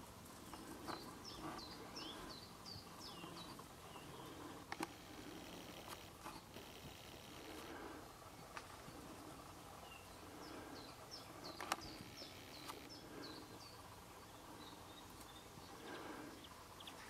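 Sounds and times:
faint background noise: 0:00.0 - 0:17.0
sharp clicks: 0:04.7 - 0:05.0, 0:11.5 - 0:13.0.

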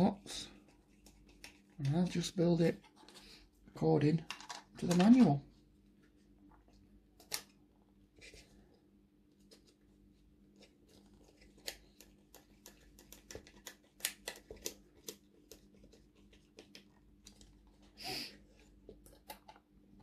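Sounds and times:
plastic parts handled: 0:04.2 - 0:05.4.

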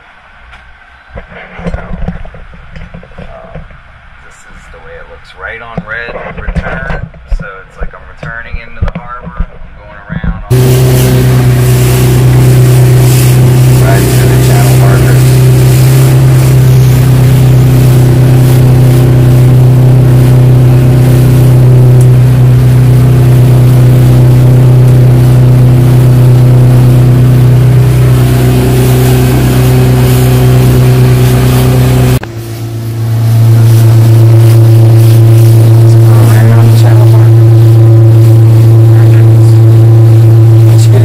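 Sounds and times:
outboard motor droning: 0:10.5 - 0:41.0.

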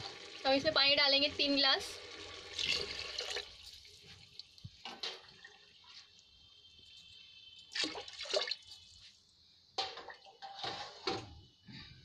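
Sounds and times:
water splashing into liquid: 0:07.7 - 0:08.8.

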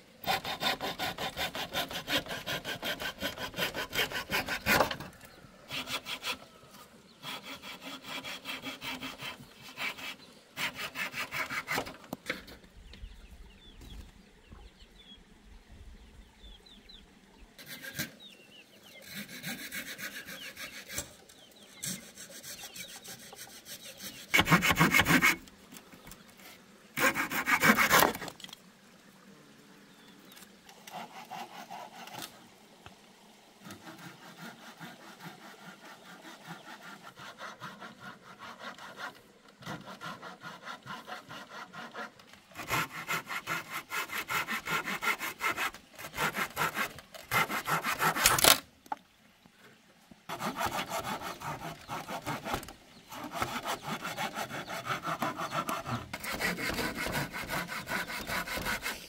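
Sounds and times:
hand saw cutting wood: 0:00.2 - 0:06.5, 0:07.1 - 0:12.6, 0:17.6 - 0:25.5, 0:26.5 - 0:28.5, 0:30.7 - 0:32.4, 0:33.6 - 0:48.6, 0:50.3 - 0:59.0.

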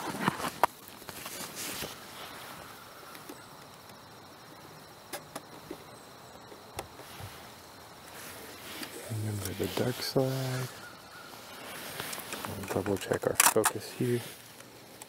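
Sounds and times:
insects trilling: 0:00.0 - 0:15.0
camera clicks and handling: 0:12.1 - 0:13.8.

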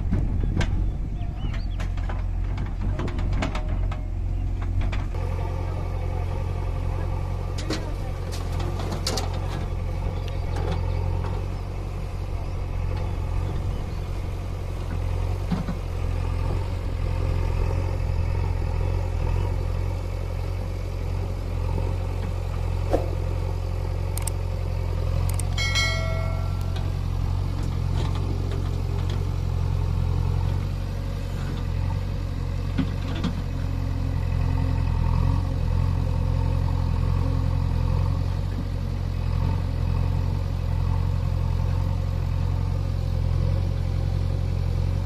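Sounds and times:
diesel engines idling: 0:00.0 - 0:45.0
sharp metal clanks and knocks: 0:25.6 - 0:27.1.

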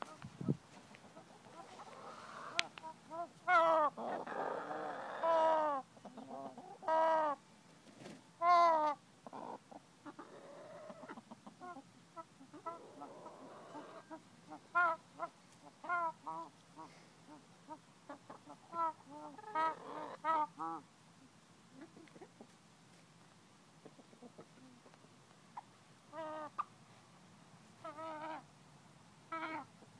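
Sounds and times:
hen wheezing calls: 0:01.6 - 0:05.8
breathy hiss: 0:01.9 - 0:02.6.

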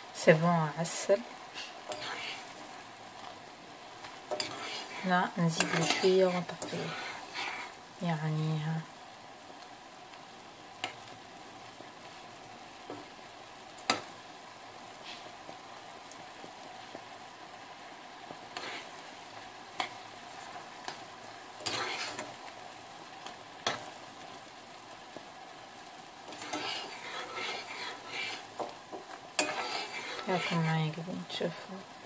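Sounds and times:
syrup bubbling and sizzling: 0:00.0 - 0:32.0
spoon scraping pan: 0:01.5 - 0:02.8, 0:04.0 - 0:07.8, 0:18.5 - 0:19.0, 0:21.6 - 0:22.4, 0:26.2 - 0:31.0
metal spoon clinking on pan: 0:29.4 - 0:30.6.

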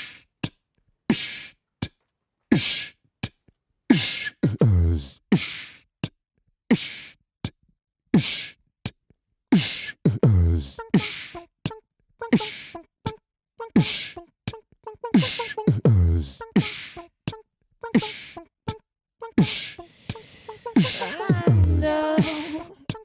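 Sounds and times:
person beatboxing: 0:00.0 - 0:00.3, 0:01.1 - 0:01.6, 0:02.5 - 0:05.8, 0:06.7 - 0:07.2, 0:08.2 - 0:08.6, 0:09.6 - 0:11.5, 0:12.2 - 0:12.9, 0:13.7 - 0:14.6, 0:15.2 - 0:18.5, 0:19.3 - 0:23.0.

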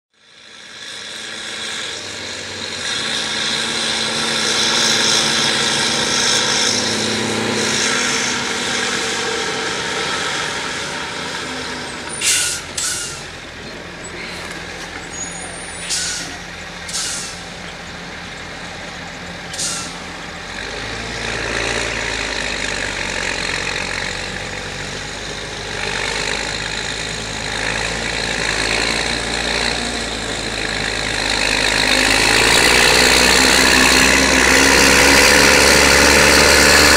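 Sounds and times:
tractor diesel engine running: 0:00.1 - 0:36.9
sharp air hisses: 0:12.1 - 0:13.4, 0:15.3 - 0:17.5, 0:19.5 - 0:20.1.

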